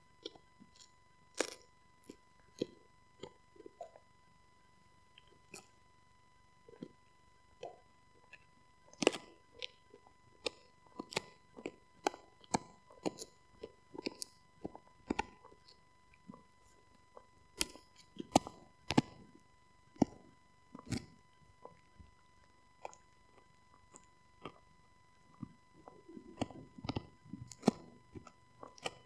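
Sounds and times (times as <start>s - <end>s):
dog gnawing on chew bone: 20.0s - 22.1s, 25.3s - 29.0s.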